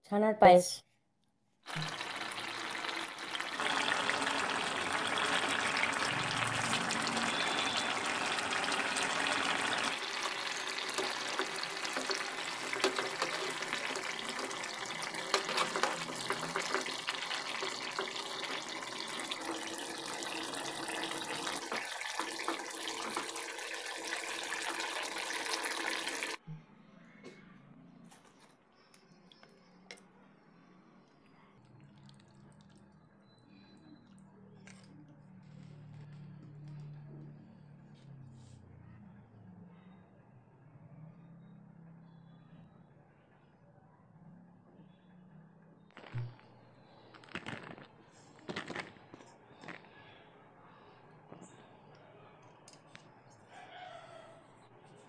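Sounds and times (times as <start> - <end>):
curry sizzling in frying pan: 1.7 - 26.4
metal spatula scraping: 10.1 - 19.2.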